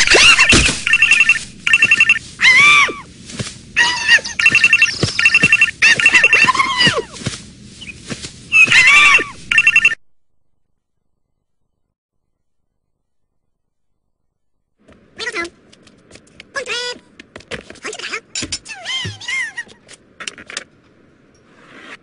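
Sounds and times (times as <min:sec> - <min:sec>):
high squeaky vocal cries: 0:00.0 - 0:03.0, 0:03.8 - 0:07.2, 0:08.5 - 0:09.8
telephone ringing: 0:00.9 - 0:02.2, 0:04.4 - 0:06.4, 0:09.5 - 0:10.0.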